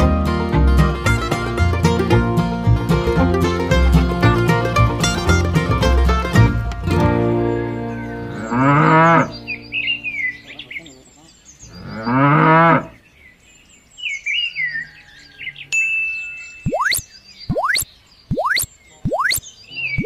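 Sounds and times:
small birds chirping: 0:07.5 - 0:12.3, 0:12.9 - 0:20.0
cow mooing: 0:08.3 - 0:09.3.

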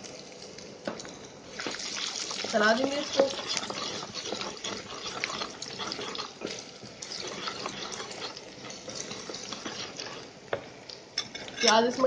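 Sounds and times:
spices sizzling in hot oil: 0:00.0 - 0:11.4
wooden spatula stirring in pan: 0:01.6 - 0:10.8.

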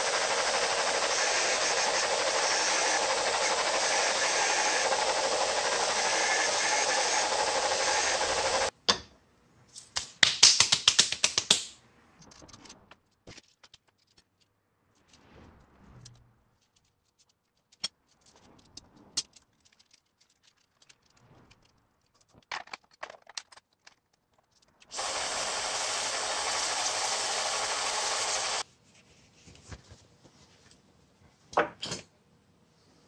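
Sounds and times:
power sander grinding: 0:00.0 - 0:08.7, 0:24.9 - 0:28.6
clicks and knocks of handling: 0:12.2 - 0:14.5, 0:16.6 - 0:24.9.

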